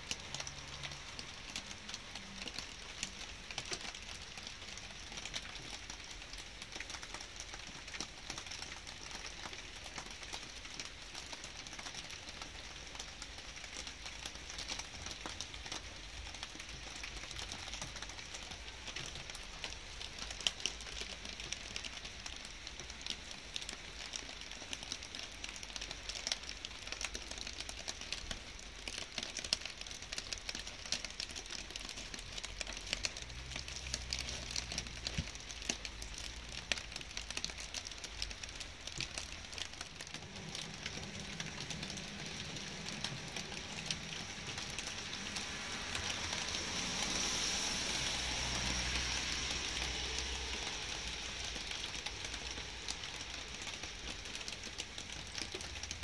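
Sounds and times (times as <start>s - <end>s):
raindrops pattering: 0.0s - 56.0s
steady rain hiss: 0.0s - 56.0s
broad hiss: 44.3s - 53.2s.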